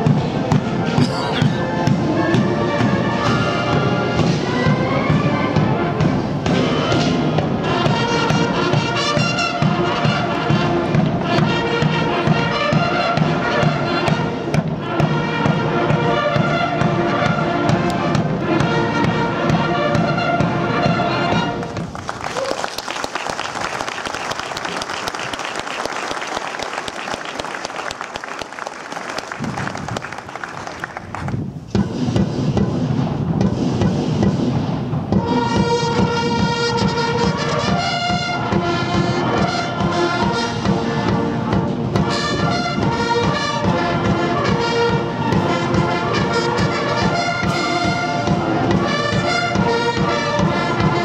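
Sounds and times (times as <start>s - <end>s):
military brass band playing: 0.0s - 22.3s, 32.1s - 51.0s
crowd applause: 21.6s - 31.4s.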